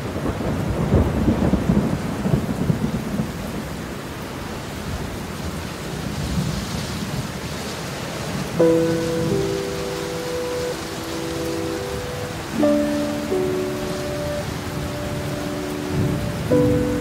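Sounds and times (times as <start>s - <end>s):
thunder rumbling: 0.0s - 3.8s, 8.3s - 17.0s
heavy rain: 0.0s - 17.0s.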